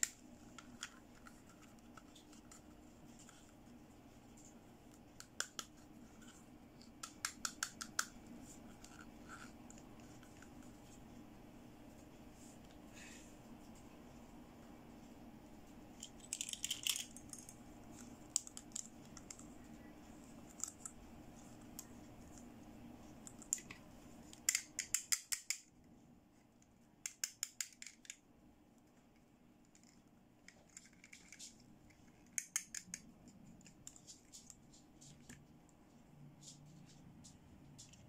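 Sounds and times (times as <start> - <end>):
plastic toys clicking and clattering: 16.0 - 19.5.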